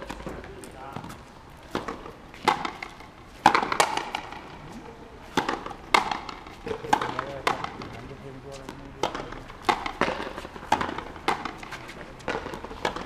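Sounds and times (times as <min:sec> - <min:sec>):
racket striking rubber ball: 0:00.0 - 0:04.6, 0:05.3 - 0:08.0, 0:08.6 - 0:13.0
ball smacking against wall: 0:09.0 - 0:13.0.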